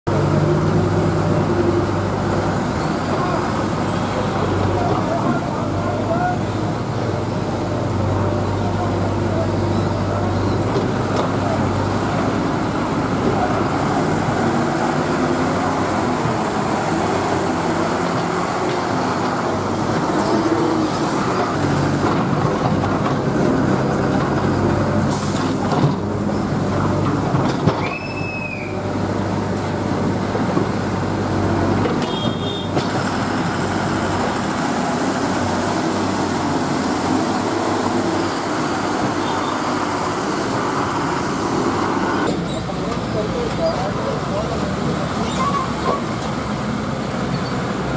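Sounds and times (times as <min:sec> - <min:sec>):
lorry diesel engines labouring: 0:00.1 - 0:47.9
short high squeals: 0:27.8 - 0:28.8.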